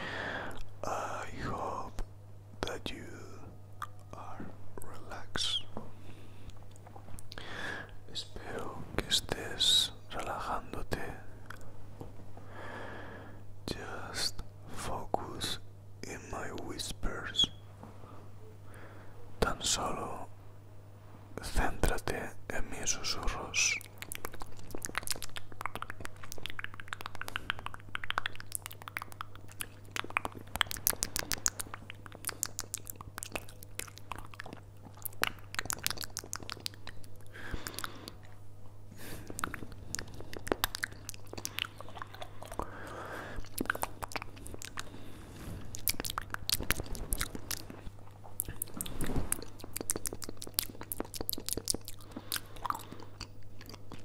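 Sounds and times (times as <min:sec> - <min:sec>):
mouth clicks and pops: 0:23.8 - 0:38.4, 0:39.0 - 0:54.0.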